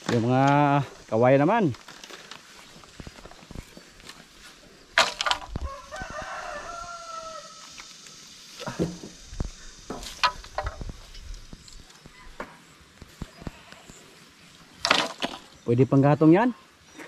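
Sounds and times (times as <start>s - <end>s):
bamboo poles knocking: 5.0s - 5.7s, 8.6s - 9.2s, 9.9s - 11.0s, 14.8s - 15.5s
rooster crowing: 5.5s - 7.8s.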